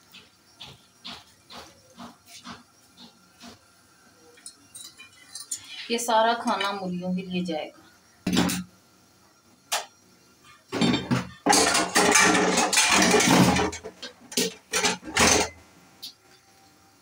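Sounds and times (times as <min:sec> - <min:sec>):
dishes clattering in a sink: 0:08.3 - 0:08.7, 0:10.7 - 0:15.6.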